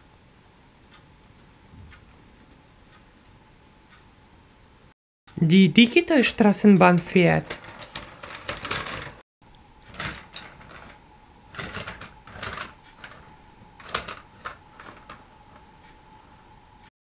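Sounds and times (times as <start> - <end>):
wheels clicking over plastic track: 6.2 - 9.2, 9.8 - 15.7.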